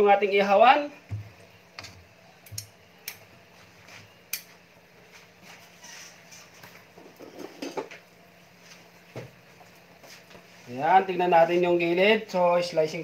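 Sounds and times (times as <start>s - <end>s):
spatula scraping a wok: 5.5s - 7.9s.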